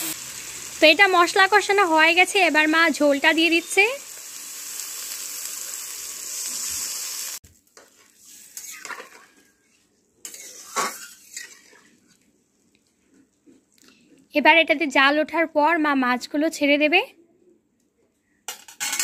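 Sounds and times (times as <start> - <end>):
water sizzling in hot wok: 0.0 - 9.5, 10.3 - 11.9
metal ladle scraping wok: 7.8 - 12.0.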